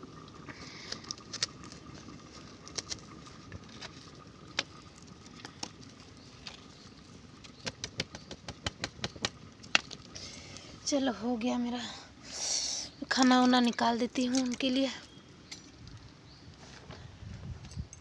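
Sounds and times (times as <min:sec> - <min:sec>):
wood fire crackling and popping: 0:00.0 - 0:06.6, 0:07.3 - 0:10.7.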